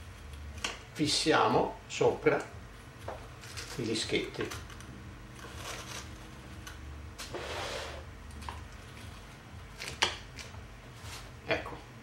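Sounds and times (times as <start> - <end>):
soft rustling: 10.9 - 11.4.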